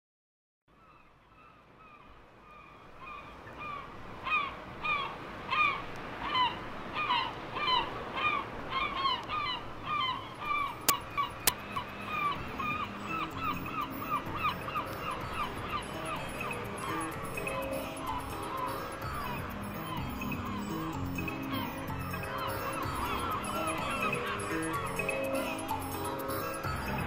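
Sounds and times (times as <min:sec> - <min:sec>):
pitch-bending vocal call: 0:11.7 - 0:27.0.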